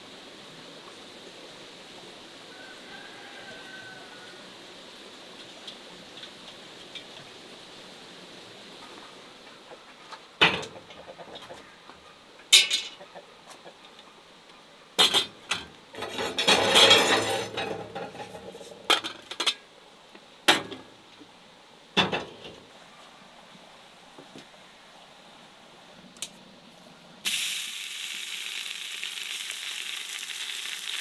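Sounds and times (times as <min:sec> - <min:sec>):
iron pot clanking on stove: 0:15.0 - 0:19.6.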